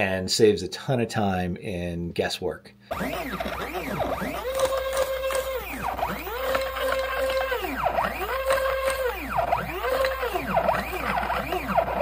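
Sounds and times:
motor whine turning a dial: 2.9 - 12.0.

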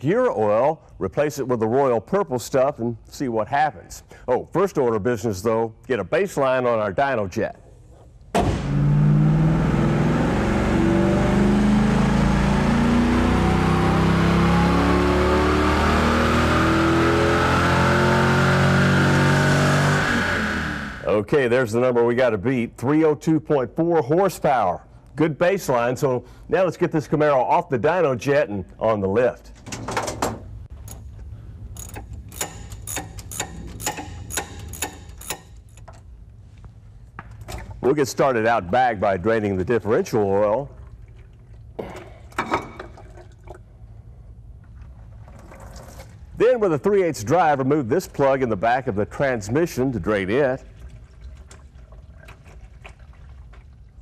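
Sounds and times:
car engine at full throttle: 8.4 - 21.1
faint whine climbing in pitch: 8.6 - 21.2.

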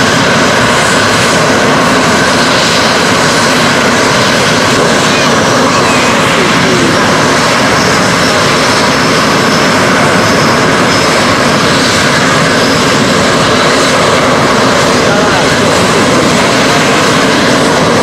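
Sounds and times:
jet engines running: 0.0 - 18.0
faint high whine: 4.6 - 11.4.

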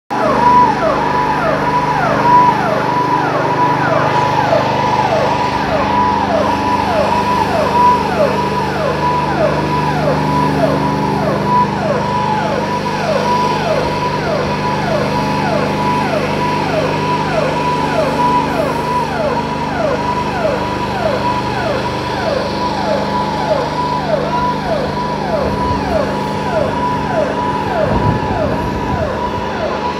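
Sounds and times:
engine-driven sprayer humming: 0.1 - 29.9
warning siren sweeping down: 0.1 - 29.9.

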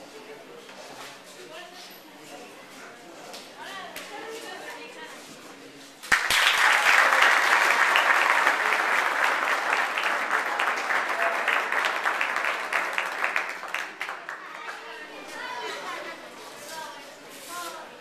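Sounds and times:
spectators applauding: 6.0 - 15.0.

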